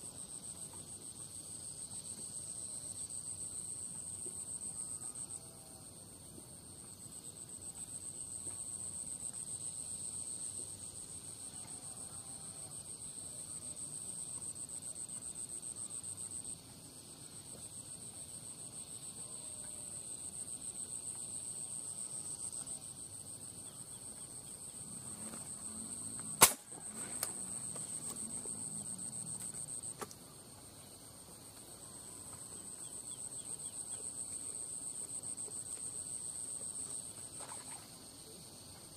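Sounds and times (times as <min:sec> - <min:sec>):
insects trilling: 0:00.0 - 0:38.9
sharp loud crack: 0:26.4 - 0:26.8.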